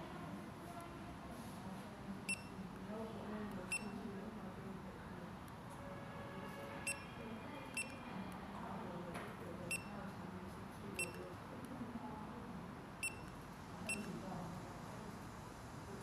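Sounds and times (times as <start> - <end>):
short high key-press beeps: 2.3 - 2.6, 3.7 - 4.0, 6.9 - 7.1, 7.7 - 8.0, 9.7 - 9.9, 11.0 - 11.2, 13.0 - 14.1.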